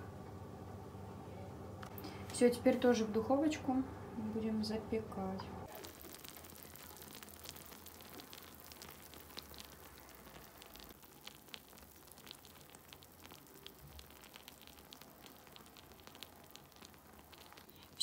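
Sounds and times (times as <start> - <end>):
low room hum: 0.0 - 18.0
baked dish crackling and sizzling: 5.6 - 18.0.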